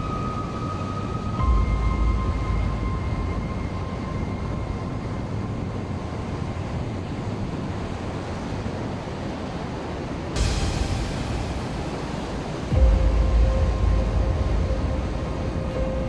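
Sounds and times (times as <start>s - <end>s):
surf breaking on beach: 9.7s - 15.9s.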